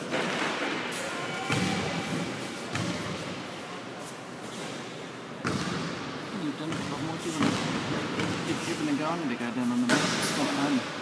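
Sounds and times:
thuds echoing in a hall: 0.0s - 3.4s, 5.4s - 8.9s, 9.8s - 10.8s.

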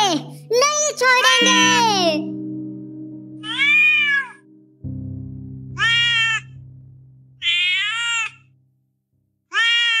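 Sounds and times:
low background music tone: 0.0s - 9.5s
kitten meowing: 3.4s - 4.4s, 5.8s - 6.5s, 7.4s - 8.5s, 9.5s - 10.0s.

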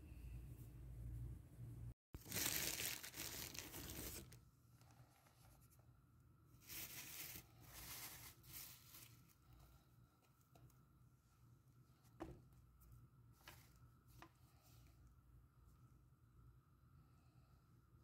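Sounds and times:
low steady hum: 2.8s - 18.0s.

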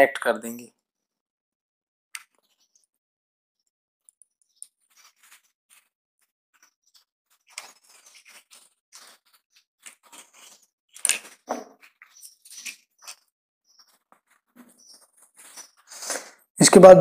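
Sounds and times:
wires rustling: 4.0s - 5.9s, 6.6s - 16.1s.

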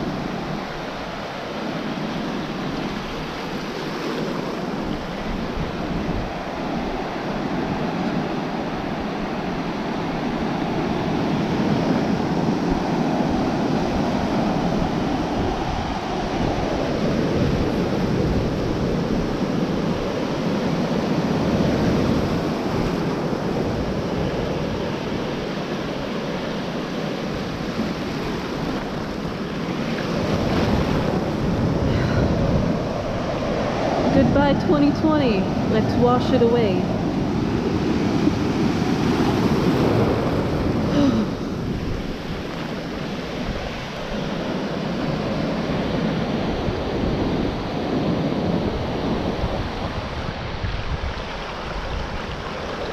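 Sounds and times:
ocean waves and surf: 0.0s - 52.9s
wind buffeting microphone: 0.0s - 52.9s.

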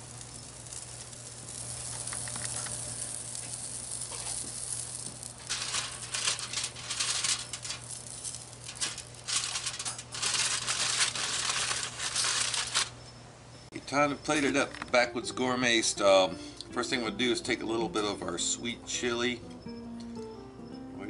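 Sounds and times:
food sizzling on grill: 0.0s - 13.0s
crinkling and rustling: 1.6s - 13.0s.

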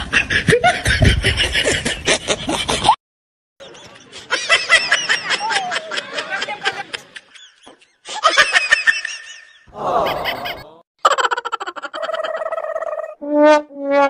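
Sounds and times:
person laughing: 9.7s - 12.5s.

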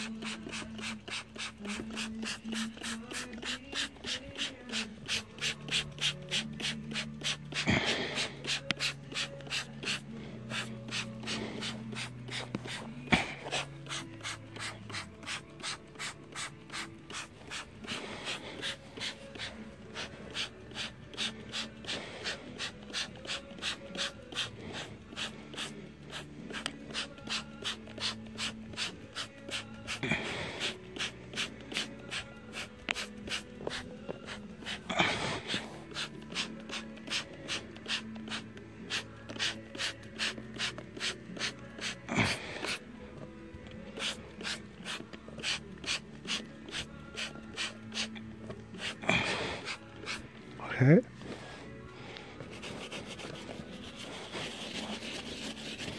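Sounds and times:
spray bottle squirting: 0.0s - 42.8s, 44.0s - 50.3s
faint background music: 0.0s - 55.9s.

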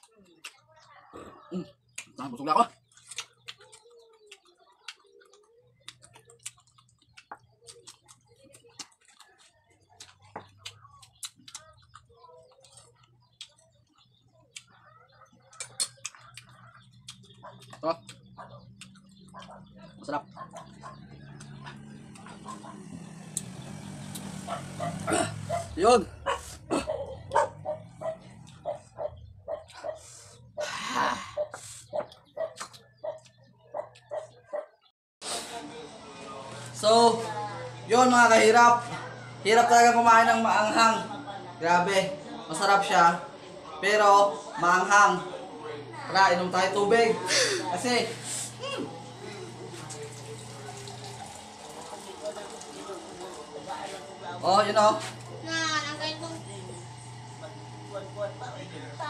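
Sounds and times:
chewing and mouth smacks: 2.8s - 19.8s, 31.5s - 34.0s
dog yapping: 24.4s - 30.1s, 31.2s - 34.8s.

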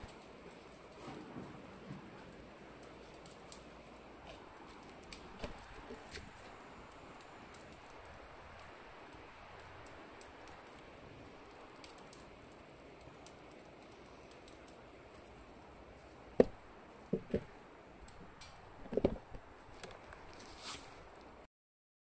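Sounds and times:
faint steady hiss: 0.0s - 21.5s
sharp fire cracks: 0.0s - 21.5s
wood fire crackling: 0.0s - 21.5s.

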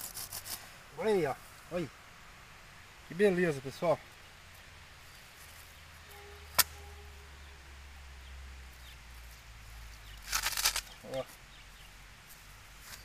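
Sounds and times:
faint steady tone: 0.6s - 10.2s
stem snapping: 6.5s - 6.8s, 10.2s - 11.2s.

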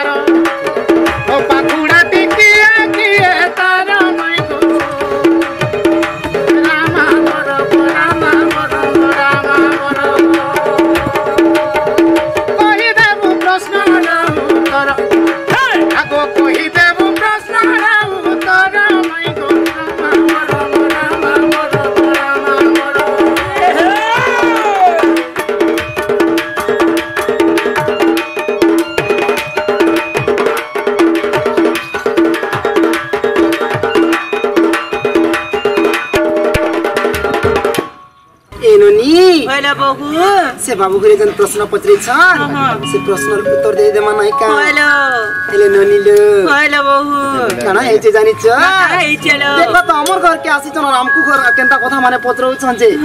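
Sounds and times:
fast hand-drum rhythm: 0.0s - 38.0s, 38.7s - 53.0s
wavering melody line: 42.0s - 53.0s.

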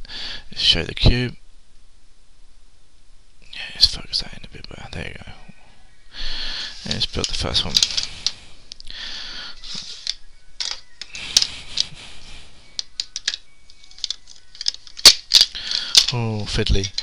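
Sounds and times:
rustling: 6.2s - 17.0s
plastic puzzle pieces clicking: 7.0s - 8.9s, 9.7s - 11.9s, 12.8s - 17.0s.

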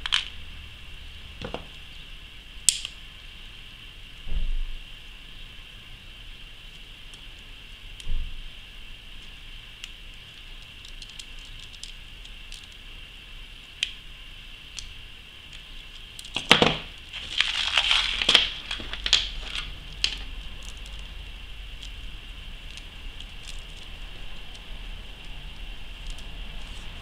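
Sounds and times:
beads clicking and rattling: 17.1s - 27.0s.

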